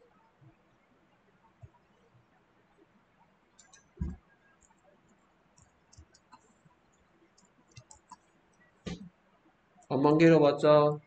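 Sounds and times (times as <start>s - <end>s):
computer keyboard and mouse clicks: 3.6s - 8.3s
low thump: 4.0s - 4.2s.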